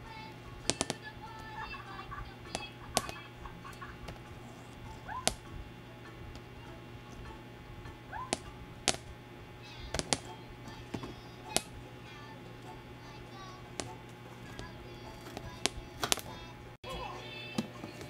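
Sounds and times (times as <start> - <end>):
toy ball tapping refrigerator door: 0.6 - 1.1, 8.2 - 9.2, 9.8 - 11.8.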